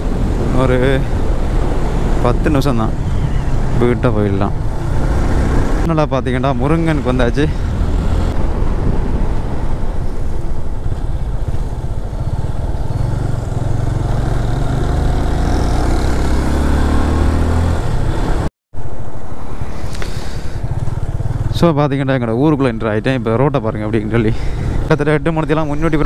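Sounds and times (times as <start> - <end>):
wind rush on microphone: 0.0 - 3.8, 7.4 - 13.6
motorcycle engine running: 20.5 - 21.8.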